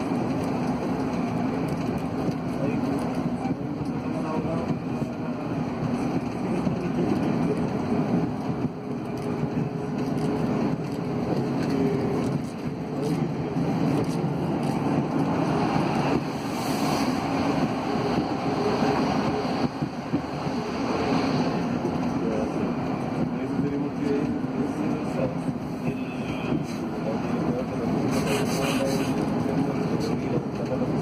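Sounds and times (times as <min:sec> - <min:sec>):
metro train cabin rumble: 0:00.0 - 0:31.0
passing train rushing hiss: 0:14.2 - 0:22.6.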